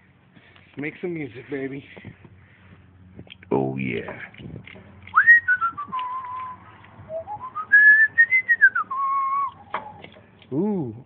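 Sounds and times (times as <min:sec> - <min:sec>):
man whistling a tune: 0:05.2 - 0:09.8.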